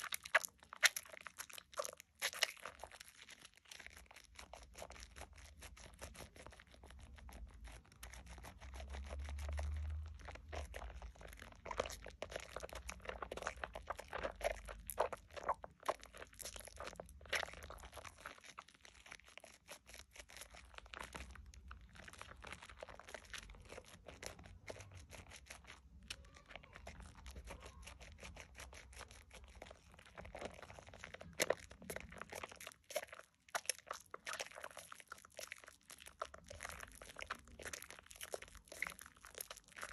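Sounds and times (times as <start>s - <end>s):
wet soap lather crackling: 0.0s - 39.9s.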